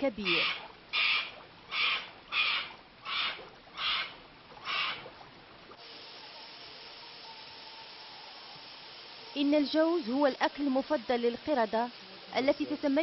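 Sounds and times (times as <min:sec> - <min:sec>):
rasping animal calls: 0:00.2 - 0:05.1
steady hiss: 0:05.6 - 0:13.0.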